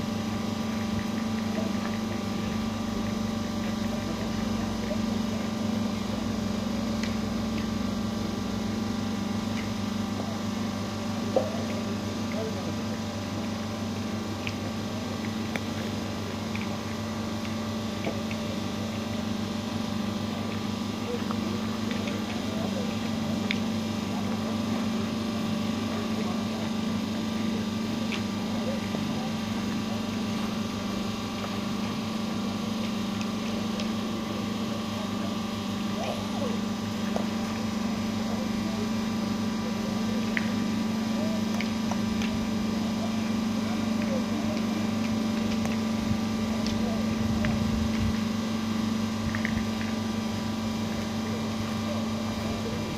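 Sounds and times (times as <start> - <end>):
low machine hum: 0.0 - 52.9
faint voices: 50.9 - 52.9.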